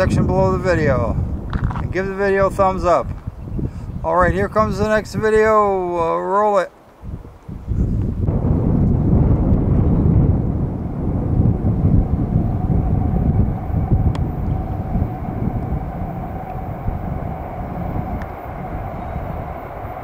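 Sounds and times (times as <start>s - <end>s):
diesel locomotive rumble: 8.0s - 20.0s.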